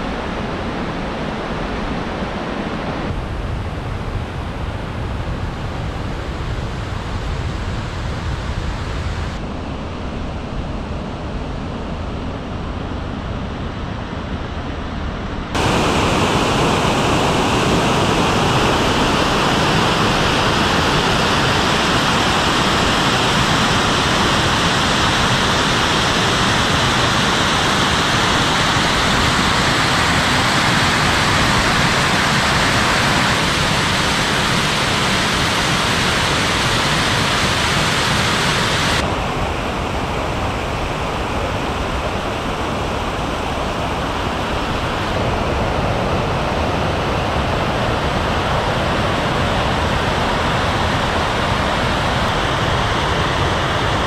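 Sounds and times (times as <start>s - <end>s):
stream rushing over rocks: 15.6s - 45.7s.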